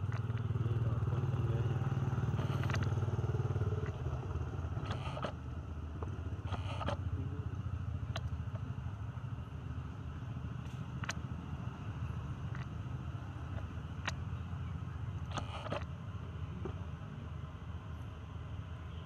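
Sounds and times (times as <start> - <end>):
motor engine running: 0.0 - 16.8
short sharp clicks and scrapes: 2.4 - 3.0, 4.8 - 5.4, 6.4 - 7.0, 15.2 - 15.9.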